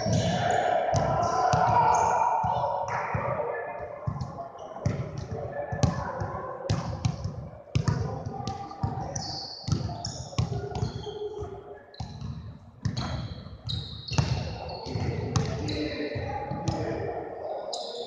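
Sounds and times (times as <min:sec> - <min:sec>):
basketballs bouncing on wooden floor: 0:06.7 - 0:11.1, 0:12.0 - 0:15.7.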